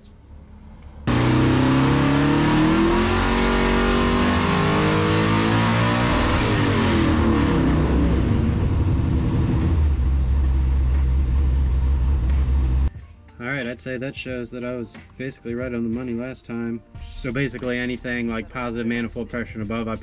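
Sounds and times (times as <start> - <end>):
engine revving at full throttle: 1.0 - 12.9.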